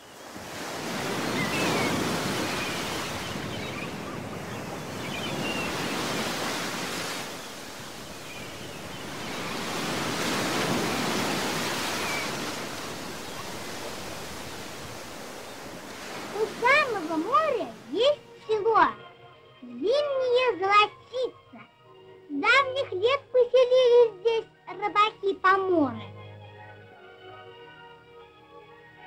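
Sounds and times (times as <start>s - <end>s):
sea waves washing onto beach: 0.0s - 18.2s.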